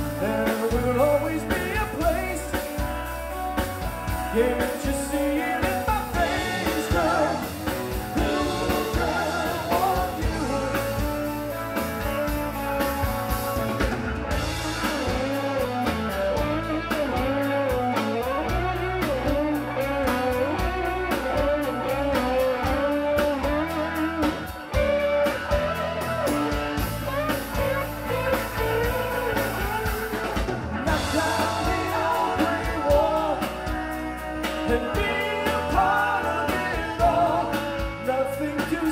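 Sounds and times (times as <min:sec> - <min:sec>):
lead vocal singing: 0:00.0 - 0:03.1, 0:04.1 - 0:12.1, 0:27.4 - 0:38.9
drum kit with cymbals: 0:00.0 - 0:38.9
electric guitars: 0:00.0 - 0:38.9
keyboard: 0:00.0 - 0:38.9.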